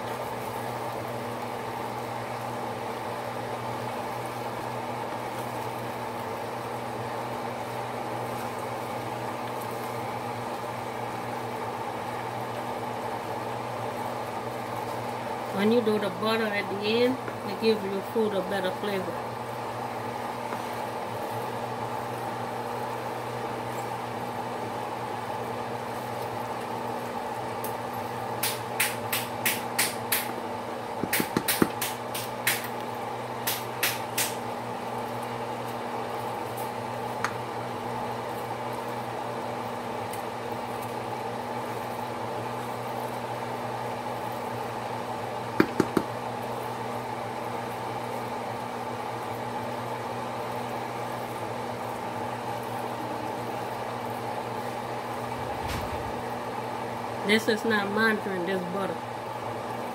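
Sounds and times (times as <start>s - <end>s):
wooden spoon knocking metal pot: 31.0s - 31.8s, 45.6s - 46.1s
steady low hum: 52.6s - 59.4s.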